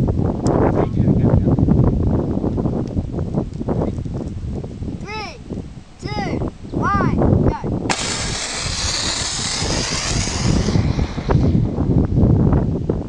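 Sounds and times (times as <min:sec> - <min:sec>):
water rocket hiss: 0:07.9 - 0:12.0.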